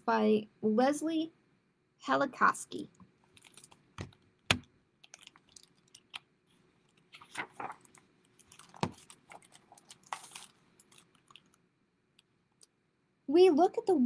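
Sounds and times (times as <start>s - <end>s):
book pages rustling: 3.2s - 11.6s.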